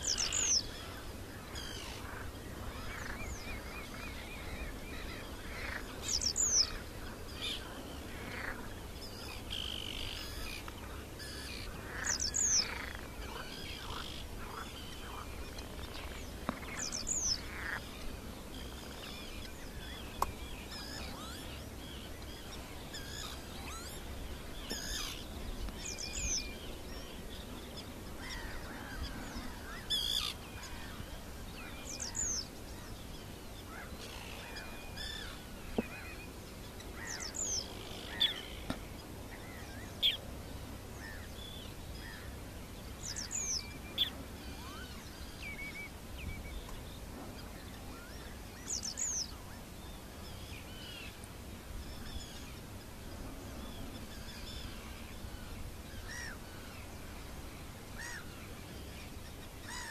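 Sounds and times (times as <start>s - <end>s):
soft bird chirps and whistles: 0.0s - 1.0s.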